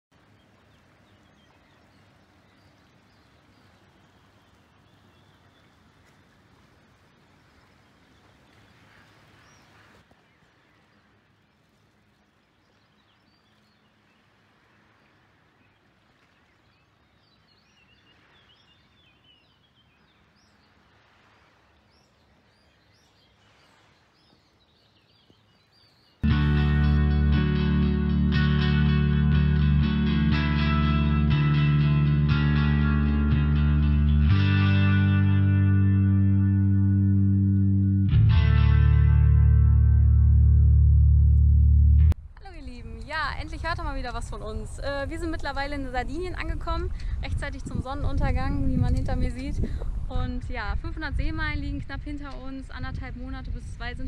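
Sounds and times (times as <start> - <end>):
low steady hiss: 0.1 - 27.0
small birds chirping: 0.2 - 6.4, 7.2 - 26.2.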